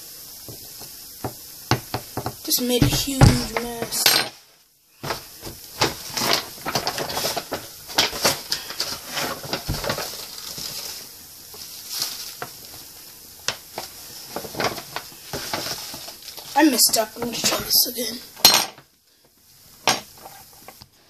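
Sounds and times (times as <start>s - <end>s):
paper package crinkling: 5.8s - 12.9s, 13.7s - 16.8s.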